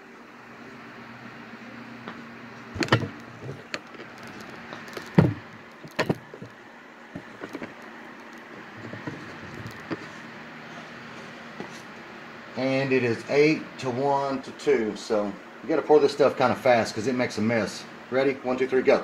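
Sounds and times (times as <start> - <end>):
items knocking on wooden workbench: 2.8 - 4.4, 5.0 - 6.6, 7.2 - 7.8, 8.8 - 10.1.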